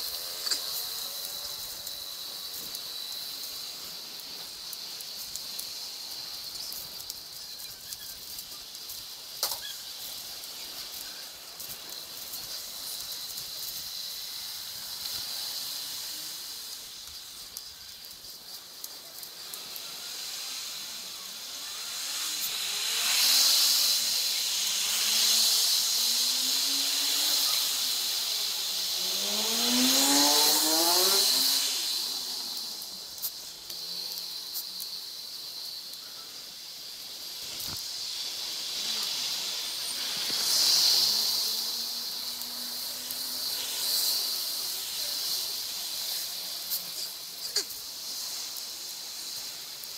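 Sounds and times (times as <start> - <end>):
wind and tyre hiss: 0.0 - 49.9
passing motor vehicle engine: 22.8 - 32.8.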